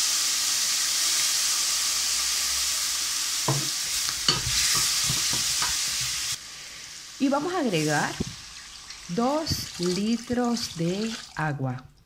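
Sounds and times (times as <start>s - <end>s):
food sizzling in a pot: 0.0s - 11.4s
knocks against a metal pot: 3.5s - 3.7s.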